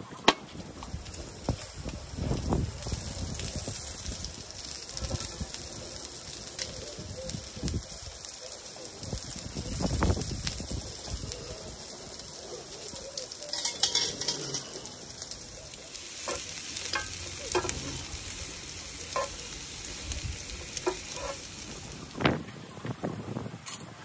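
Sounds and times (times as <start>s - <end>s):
onions sizzling in a pan: 0.0s - 24.0s
metal tongs clicking and scraping: 13.5s - 14.8s, 19.1s - 19.4s, 20.8s - 21.5s.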